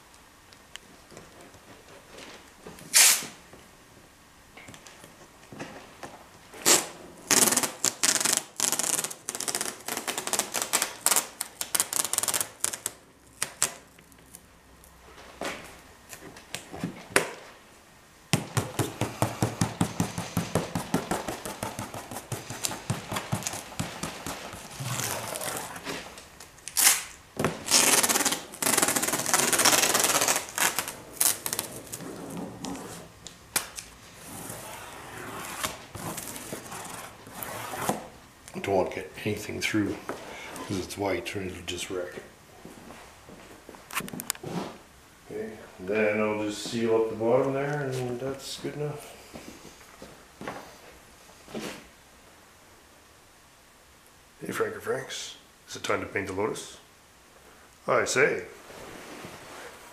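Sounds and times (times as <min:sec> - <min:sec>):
masking tape crackling: 0:06.6 - 0:14.9, 0:18.4 - 0:37.8.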